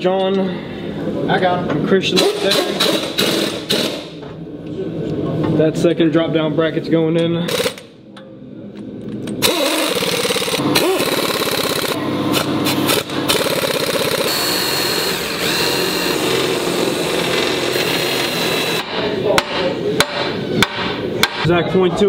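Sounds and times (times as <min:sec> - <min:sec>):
impact wrench rattling: 0:07.5 - 0:07.9, 0:09.4 - 0:14.4.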